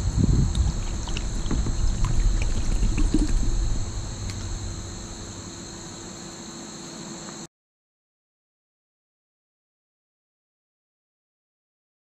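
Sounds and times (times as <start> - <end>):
insects trilling: 0.0 - 7.5
water splashing off bottle: 0.5 - 4.6.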